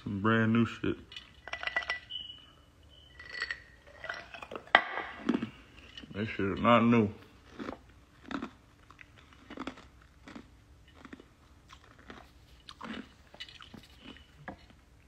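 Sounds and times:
faint crunching and clicking: 7.2s - 15.0s.

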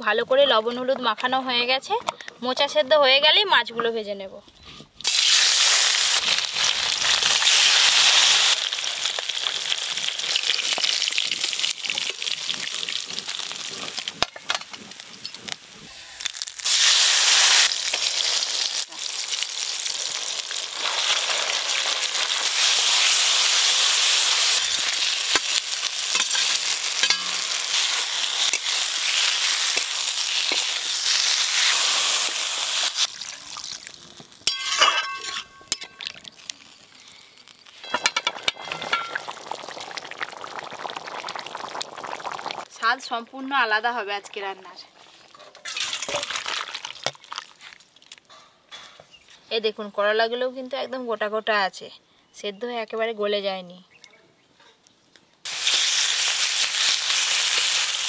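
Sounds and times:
oil sizzling in a wok: 5.0s - 35.4s, 55.4s - 58.0s
metal spatula stirring: 25.3s - 27.6s, 34.4s - 36.2s.

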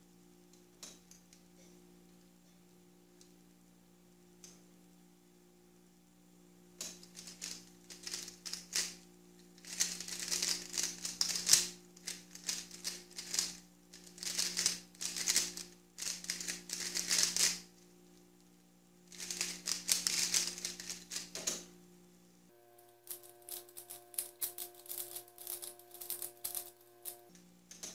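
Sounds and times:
plastic puzzle cube clicking: 9.6s - 17.6s.

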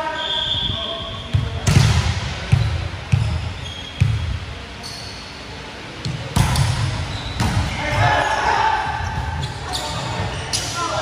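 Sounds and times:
volleyball being hit: 1.6s - 2.8s, 6.3s - 7.7s.

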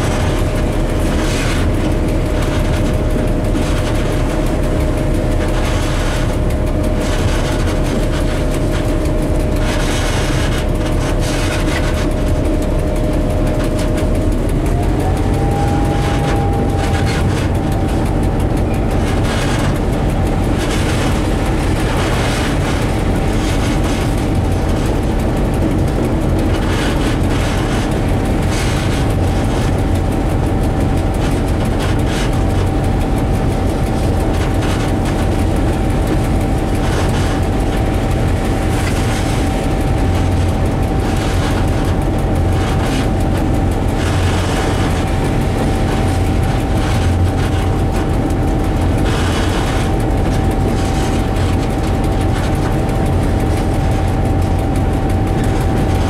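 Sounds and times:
locomotive engine rumble: 0.0s - 56.0s
wheel and rail noise: 0.0s - 56.0s
constant high tone: 12.5s - 23.3s.

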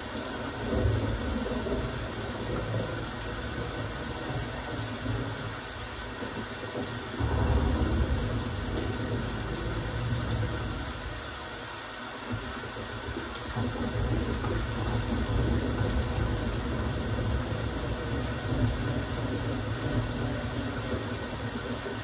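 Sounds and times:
steady rain hiss: 0.0s - 22.0s
low rumble: 7.2s - 11.3s.

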